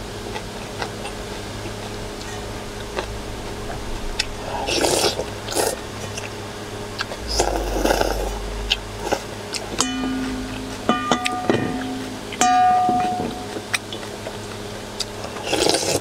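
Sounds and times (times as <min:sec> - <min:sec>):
person slurping noodles: 0:04.3 - 0:06.3, 0:07.2 - 0:09.3, 0:15.4 - 0:16.0.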